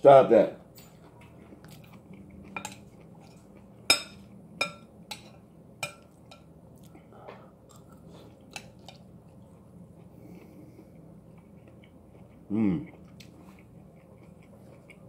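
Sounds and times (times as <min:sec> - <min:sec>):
quiet chewing: 0:00.8 - 0:03.9, 0:06.0 - 0:15.0
metal spoon clinking against bowl: 0:03.9 - 0:06.5.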